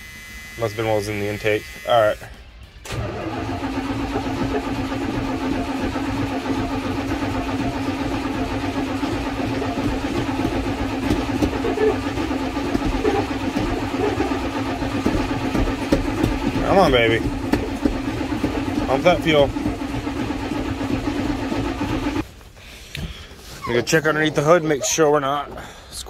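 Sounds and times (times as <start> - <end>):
engine cranking by starter: 2.6 - 22.3.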